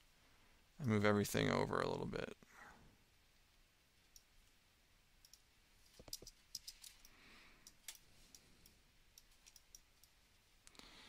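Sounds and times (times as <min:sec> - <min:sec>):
computer mouse and keyboard clicks: 0:05.2 - 0:10.2.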